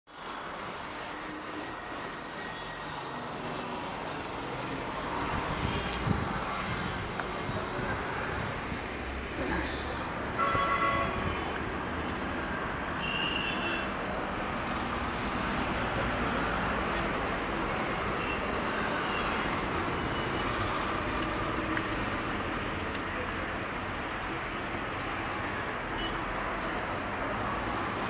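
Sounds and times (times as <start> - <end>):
city road traffic hum: 0.1 - 28.0
vehicle horn toots: 10.4 - 11.5, 13.0 - 13.9.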